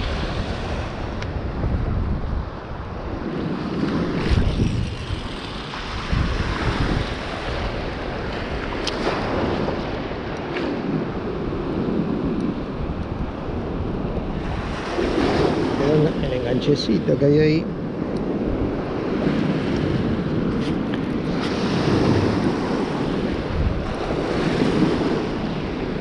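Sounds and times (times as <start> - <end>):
surf washing and breaking: 0.0 - 26.0
wind buffeting microphone: 0.0 - 26.0.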